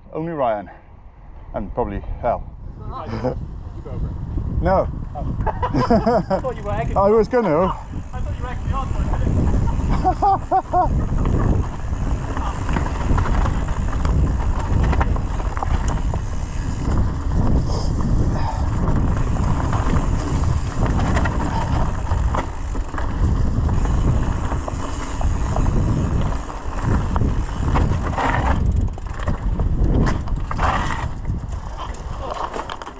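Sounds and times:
wind rumbling on microphone: 0:00.9 - 0:32.9
bike rattling over bumps: 0:04.4 - 0:32.9
tyres running over dirt: 0:05.8 - 0:32.9.

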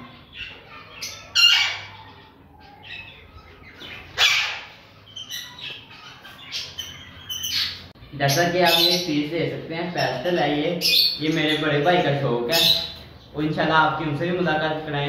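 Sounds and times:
soft bird chirps: 0:00.0 - 0:09.2
lovebirds squawking: 0:00.0 - 0:14.6.

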